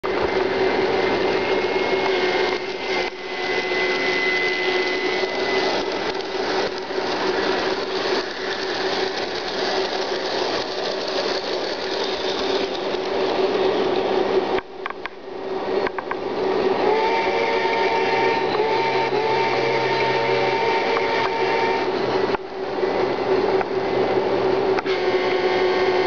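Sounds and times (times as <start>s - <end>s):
model train motors whirring: 0.1s - 26.0s
wheels rattling on track: 0.2s - 15.2s.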